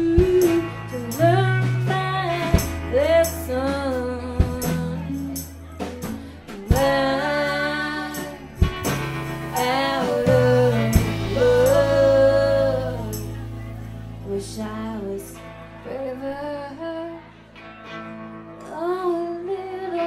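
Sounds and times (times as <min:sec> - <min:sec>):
low bass notes: 0:00.0 - 0:16.8
woman singing: 0:00.0 - 0:17.4, 0:18.6 - 0:20.0
strummed electric guitar: 0:00.0 - 0:20.0
tambourine: 0:04.6 - 0:06.9.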